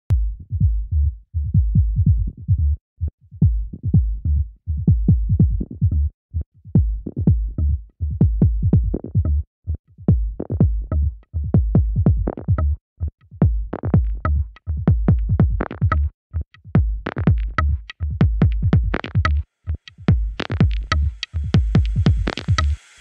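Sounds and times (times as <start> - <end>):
electronic music with heavy bass: 17.2 - 23.0.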